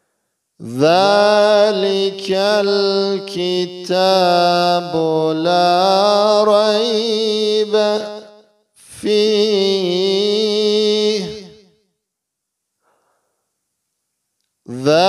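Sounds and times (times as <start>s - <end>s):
man chanting: 0.6s - 11.6s, 14.7s - 15.0s.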